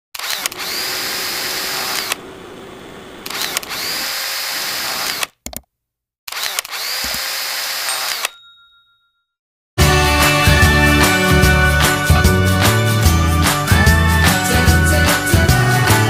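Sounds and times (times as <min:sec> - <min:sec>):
electric food chopper whirring: 0:00.2 - 0:05.3, 0:06.4 - 0:08.2.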